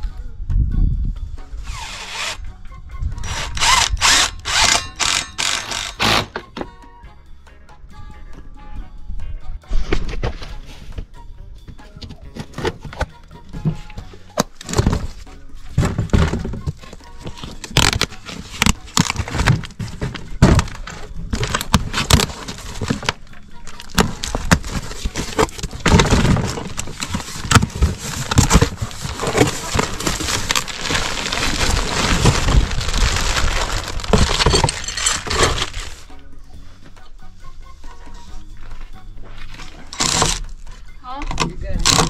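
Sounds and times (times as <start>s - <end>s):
cardboard scraping and rustling: 12.3s - 36.1s, 39.4s - 40.4s
cardboard and tape ripping: 14.4s - 15.2s, 15.8s - 36.1s, 39.9s - 40.5s.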